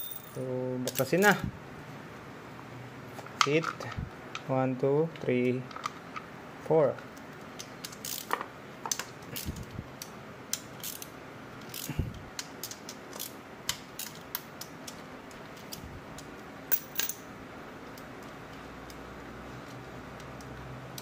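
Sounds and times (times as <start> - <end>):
ratchet wrench clicking: 7.8 - 8.3, 9.4 - 12.0.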